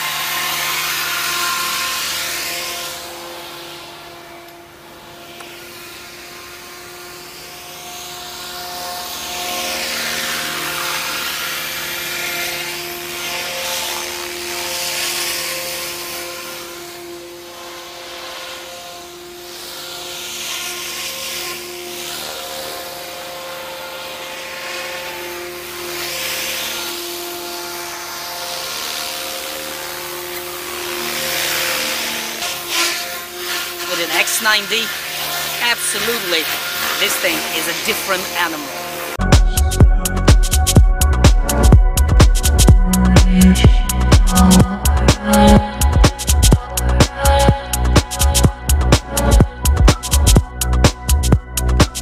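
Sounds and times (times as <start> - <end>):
drone motors whining: 0.0 - 52.0
whoosh of passing drone: 38.7 - 50.5.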